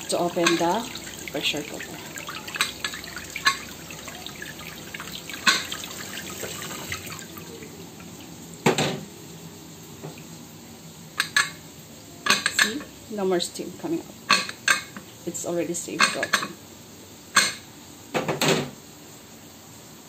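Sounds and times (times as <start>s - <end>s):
tap water splashing on metal lid: 0.0s - 7.4s.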